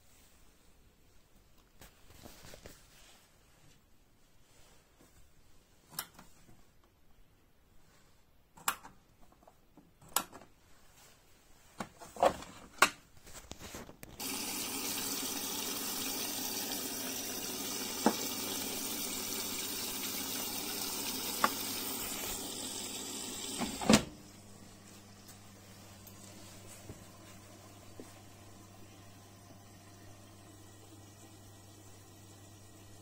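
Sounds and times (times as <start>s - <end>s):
water rushing into washing machine: 14.2s - 24.4s, 27.0s - 33.0s.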